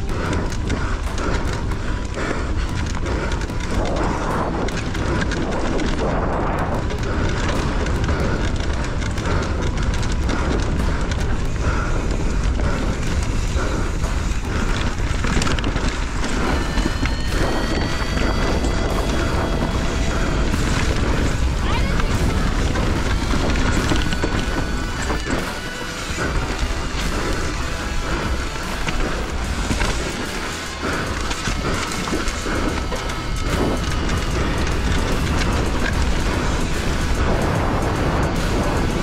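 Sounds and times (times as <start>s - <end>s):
bike rattling over rough ground: 0.0s - 39.0s
wind buffeting microphone: 0.0s - 39.0s.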